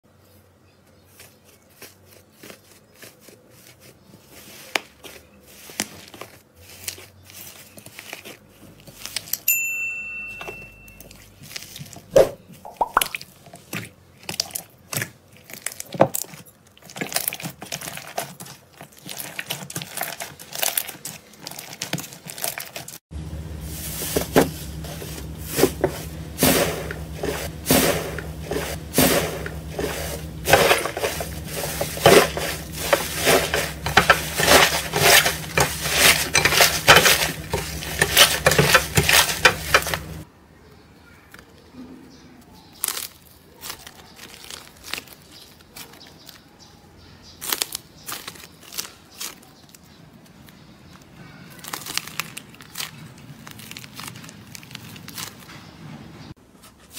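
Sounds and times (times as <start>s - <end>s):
steady low hum: 23.1s - 40.2s.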